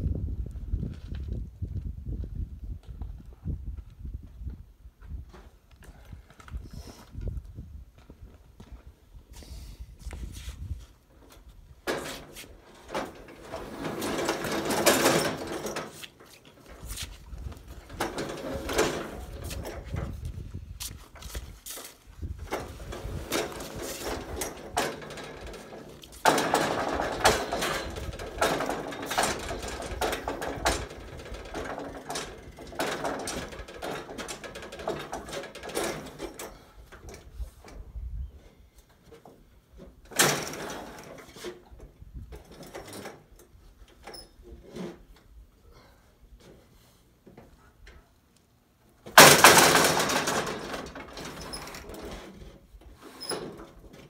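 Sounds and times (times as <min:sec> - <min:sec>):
wooden truss knocking and scraping: 0:11.3 - 0:21.5, 0:22.3 - 0:36.6, 0:49.1 - 0:54.0
loud clatter: 0:22.5 - 0:36.3, 0:49.1 - 0:52.0.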